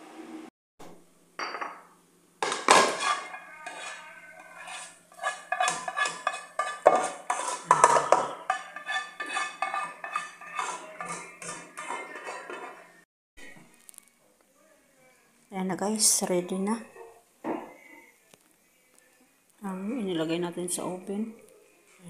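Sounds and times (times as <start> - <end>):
spoon scraping and clinking dishes: 1.4 - 13.0.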